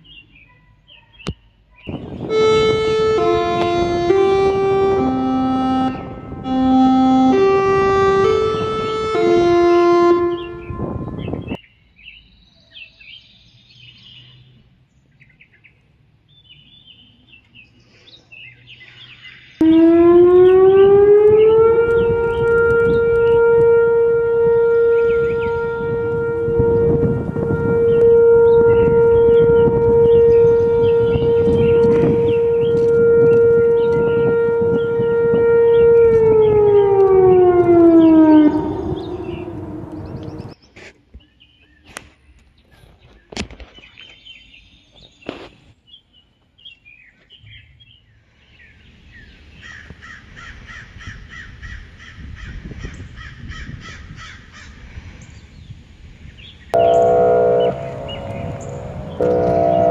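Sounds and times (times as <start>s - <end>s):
warning siren alert tone: 2.2s - 11.5s, 19.6s - 40.6s, 56.8s - 59.9s.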